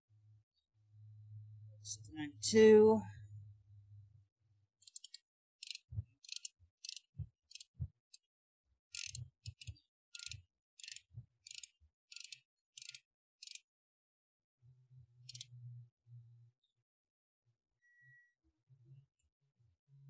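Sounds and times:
torque wrench ratchet clicking: 0:04.8 - 0:07.7, 0:08.9 - 0:13.6.

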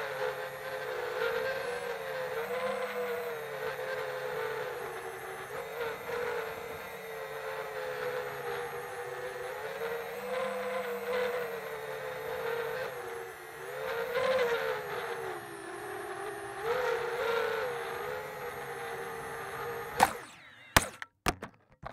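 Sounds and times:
quadcopter motors whining: 0:00.0 - 0:21.4.

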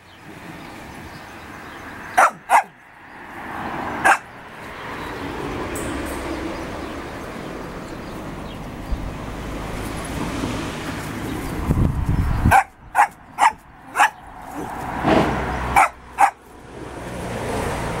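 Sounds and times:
small dog barking: 0:02.1 - 0:02.8, 0:04.0 - 0:04.3, 0:12.5 - 0:14.7, 0:15.7 - 0:16.4.

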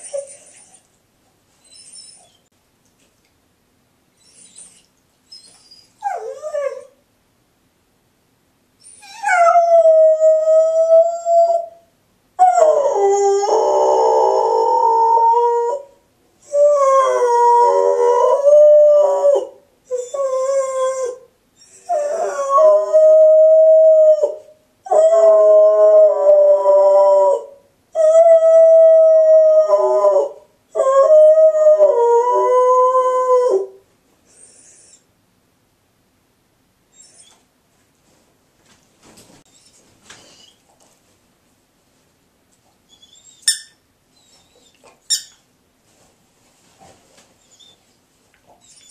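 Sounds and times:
dog howling: 0:12.4 - 0:21.2, 0:21.9 - 0:33.8.

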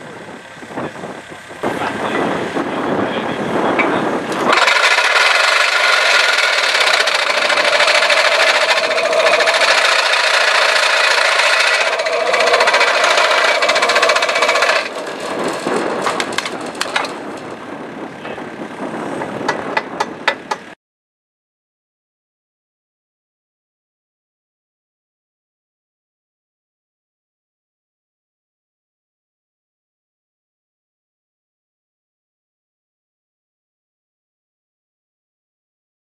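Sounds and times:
quiet machine noise: 0:00.0 - 0:20.7
post driver buzzing rattle: 0:03.8 - 0:17.6, 0:19.4 - 0:20.8.

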